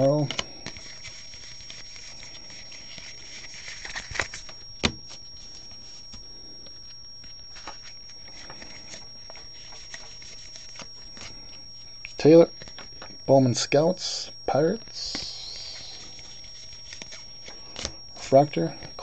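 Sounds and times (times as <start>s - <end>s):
cards sliding and flicking: 0.2s - 11.6s, 15.0s - 18.0s.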